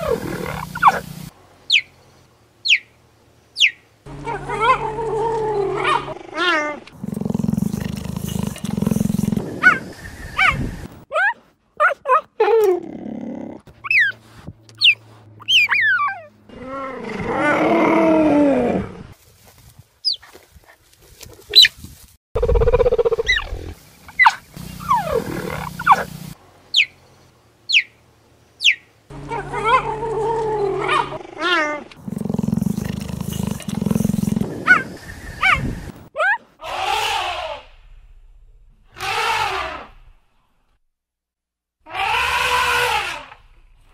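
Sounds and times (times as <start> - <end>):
big cat vocalising: 0.0 - 1.3, 4.1 - 10.7, 22.4 - 26.4, 29.1 - 35.8.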